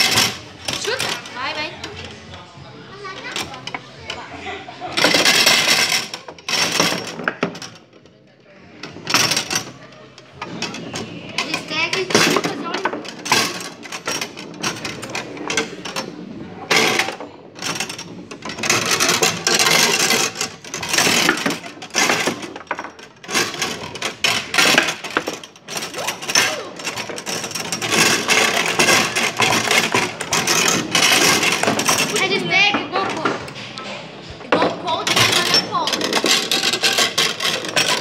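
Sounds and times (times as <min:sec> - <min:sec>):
foosball rods and figures clattering: 0:00.0 - 0:38.0.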